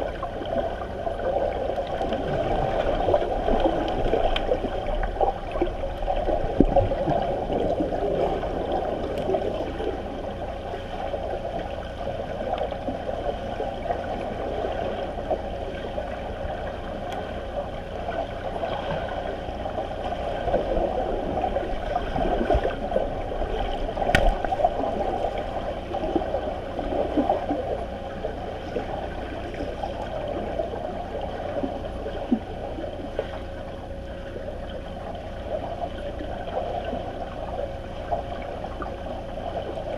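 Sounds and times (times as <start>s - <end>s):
underwater rushing and bubbling: 0.0s - 39.9s
sharp click: 24.1s - 24.4s.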